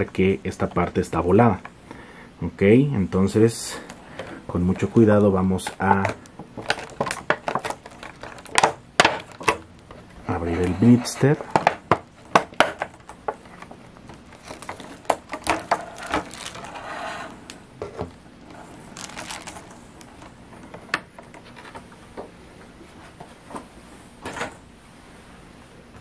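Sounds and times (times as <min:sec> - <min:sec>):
plastic packaging crinkling: 0:04.7 - 0:10.1, 0:10.7 - 0:20.4.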